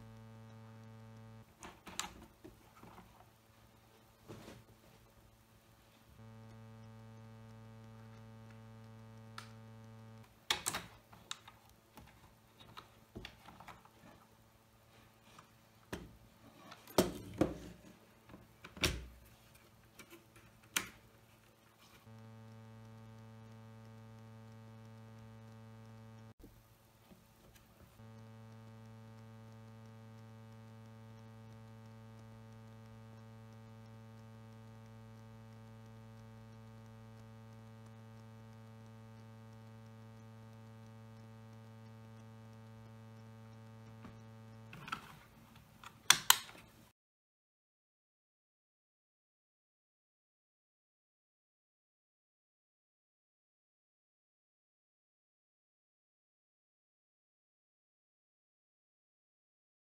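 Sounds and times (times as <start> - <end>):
steady electrical hum: 0.0 - 46.9.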